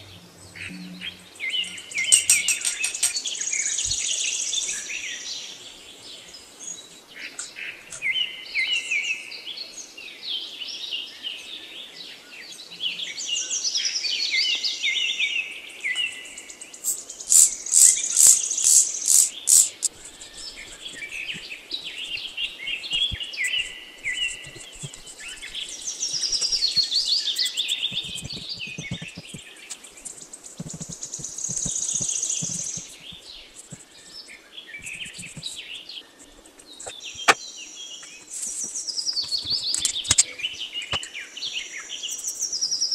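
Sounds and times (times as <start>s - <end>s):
birds chirping and singing: 0.0s - 8.9s, 15.9s - 42.9s
spray bottle squirts: 16.8s - 20.0s.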